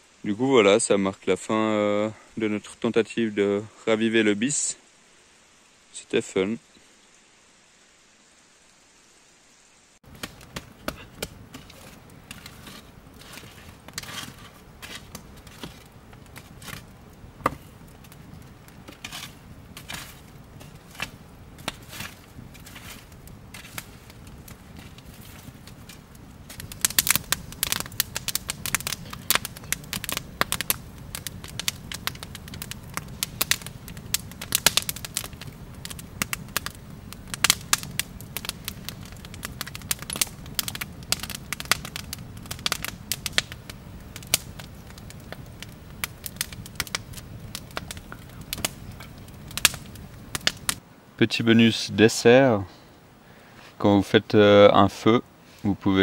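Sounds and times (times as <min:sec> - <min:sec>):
campfire crackling: 0:00.0 - 0:56.0
hiss of flames: 0:03.4 - 0:54.1, 0:54.8 - 0:56.0
sharp pops of fire: 0:10.0 - 0:50.8.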